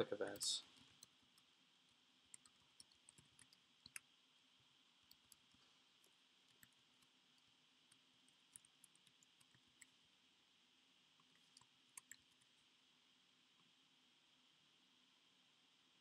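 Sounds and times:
low steady hiss: 0.0 - 16.0.

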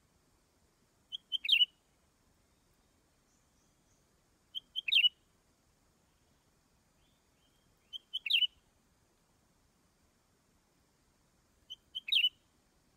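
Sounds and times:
bird singing: 1.1 - 1.8, 2.4 - 5.2, 7.0 - 8.6, 11.7 - 12.5.

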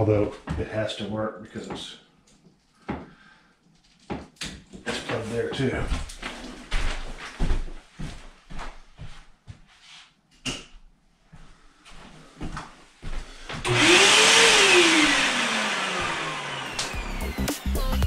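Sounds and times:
vacuum cleaner running: 13.6 - 18.0.

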